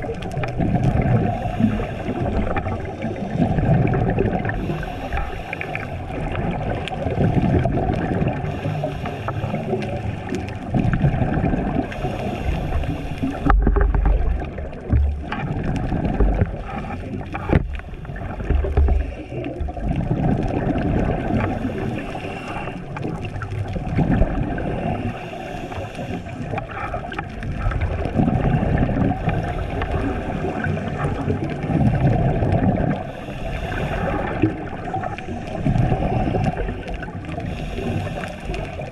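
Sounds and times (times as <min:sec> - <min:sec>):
gurgling exhaled bubbles: 0:00.0 - 0:38.9
regulator breathing hiss: 0:01.3 - 0:03.6, 0:04.5 - 0:06.0, 0:08.5 - 0:10.2, 0:11.9 - 0:13.5, 0:21.5 - 0:22.9, 0:24.7 - 0:26.5, 0:33.0 - 0:38.8.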